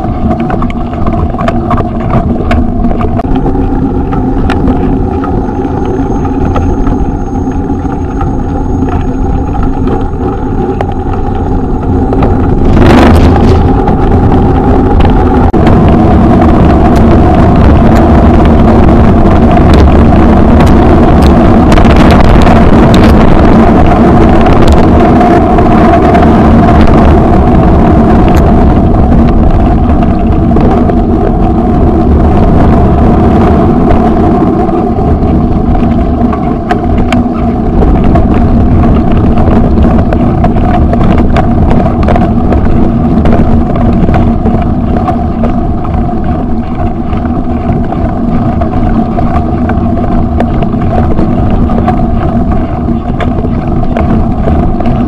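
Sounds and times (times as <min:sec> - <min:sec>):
off-road vehicle engine running: 0:00.0 - 0:55.0
wind on microphone: 0:00.0 - 0:55.0.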